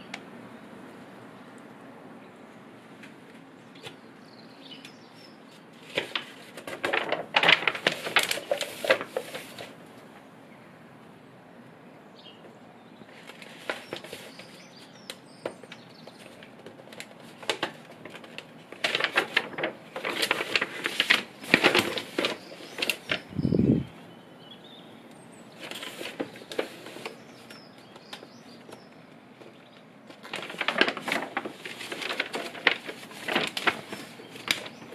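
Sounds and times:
paper pages rustling and flapping: 5.0 - 9.9, 13.0 - 23.5, 25.6 - 34.9.

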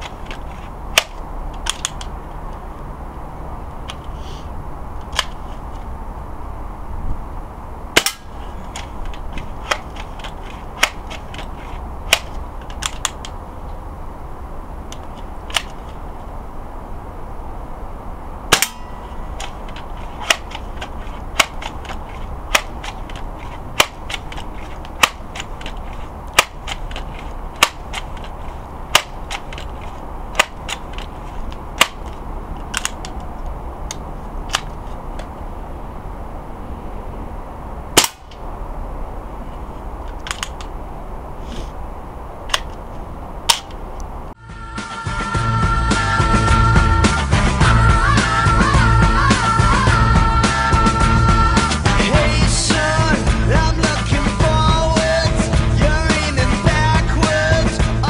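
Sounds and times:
air rifle shots: 7.9 - 13.3, 18.5 - 29.7, 30.3 - 31.1, 31.8 - 33.1, 38.0 - 38.4.

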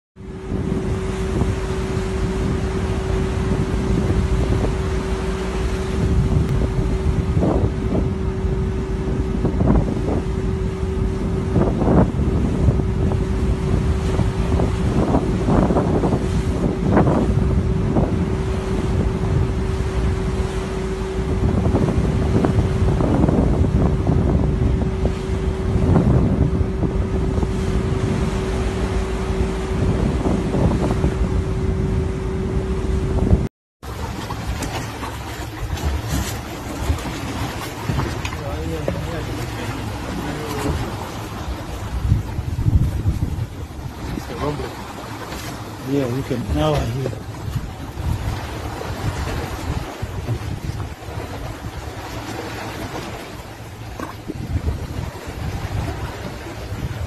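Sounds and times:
boat engine drone: 0.2 - 57.0
wind buffeting microphone: 0.2 - 57.0.

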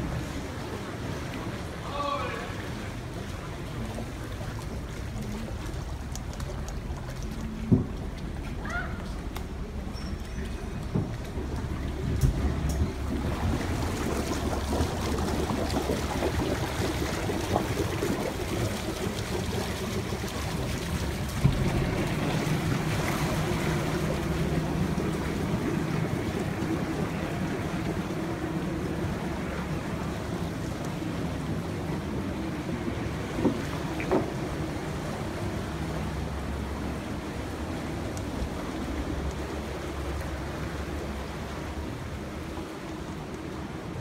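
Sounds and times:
boat engine running slowly: 0.0 - 44.0
water sloshing against hulls: 0.0 - 44.0.

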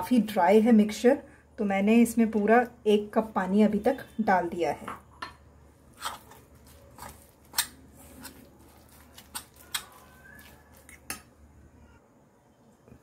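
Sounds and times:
spoon scraping batter: 5.8 - 11.3.

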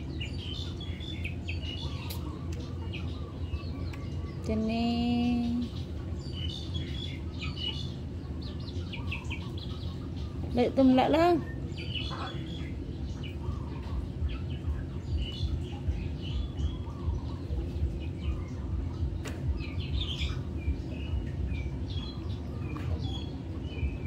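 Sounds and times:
low background rumble: 0.0 - 24.0
small birds chirping: 0.0 - 24.0.

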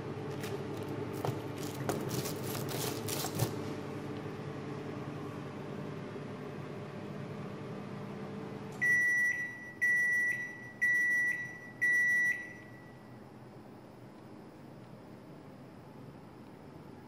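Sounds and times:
microwave oven humming: 0.0 - 17.0
microwave beeps: 8.8 - 13.3.

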